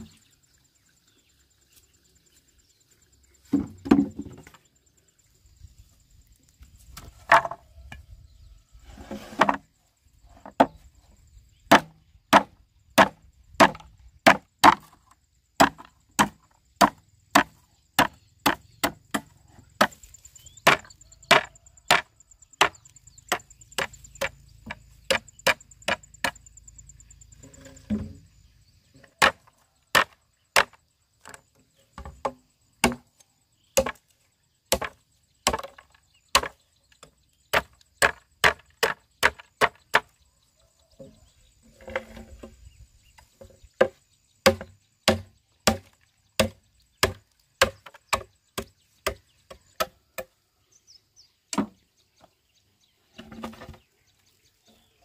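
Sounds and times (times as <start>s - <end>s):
machete chopping bamboo: 11.7s - 26.4s, 29.1s - 31.4s, 32.0s - 33.2s, 33.8s - 34.1s, 34.7s - 36.6s, 37.5s - 40.1s, 43.8s - 50.4s, 51.5s - 51.8s.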